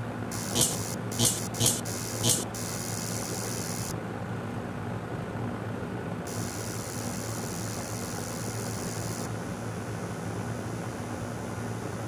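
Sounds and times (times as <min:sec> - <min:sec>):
electrical hum: 0:00.0 - 0:04.2, 0:06.2 - 0:12.0
static hiss: 0:00.3 - 0:03.9, 0:06.3 - 0:09.3.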